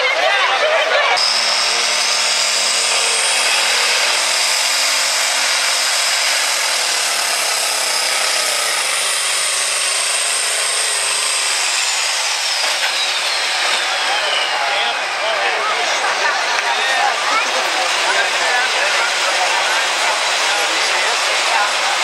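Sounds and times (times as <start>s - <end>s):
diesel engine under load: 0.0s - 22.0s
high-pitched turbo whistle: 1.2s - 4.1s, 10.6s - 15.0s.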